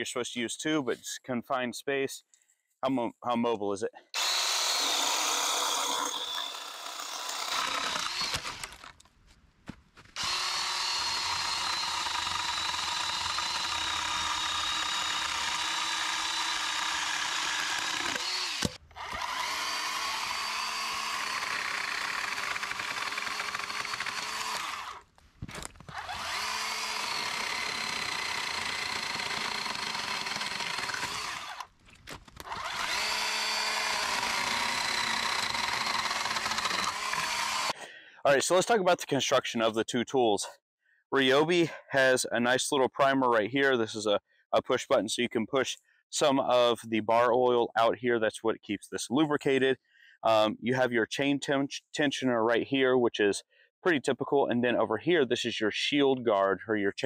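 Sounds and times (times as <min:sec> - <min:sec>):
chainsaw motor whine cutting branches: 0:04.2 - 0:09.0, 0:10.2 - 0:37.8.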